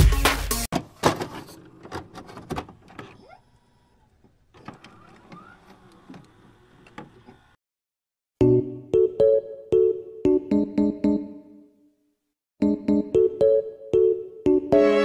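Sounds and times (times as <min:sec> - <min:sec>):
piano music: 0:12.6 - 0:15.0.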